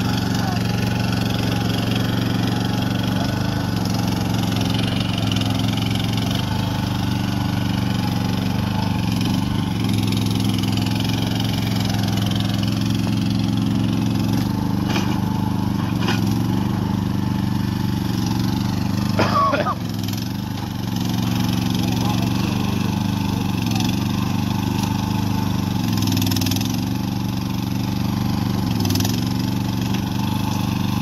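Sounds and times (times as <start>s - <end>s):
small excavator engine running: 0.0s - 31.0s.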